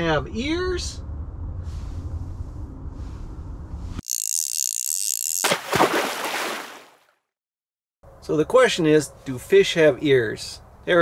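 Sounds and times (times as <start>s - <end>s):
low room rumble: 0.0s - 4.0s
splash-like rush: 5.4s - 7.0s.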